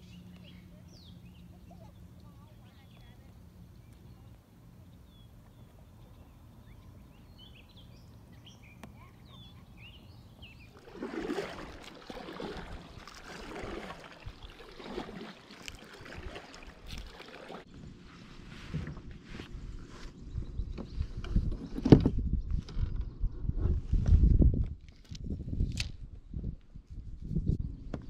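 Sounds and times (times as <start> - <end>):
kayak paddle splashing: 10.5 - 17.7.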